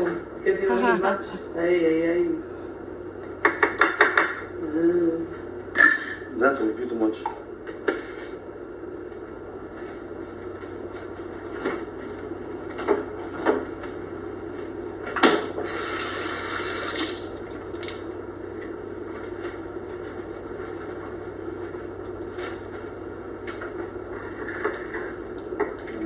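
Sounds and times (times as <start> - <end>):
steady low hum: 0.0 - 26.0
kitchen tap running: 15.6 - 18.0.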